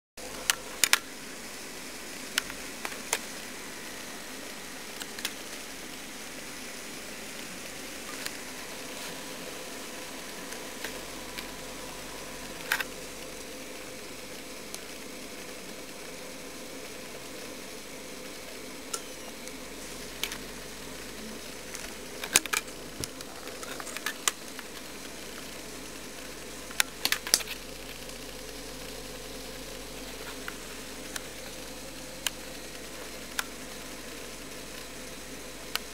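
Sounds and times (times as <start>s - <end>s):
laptop cooling fan hum: 0.2s - 35.9s.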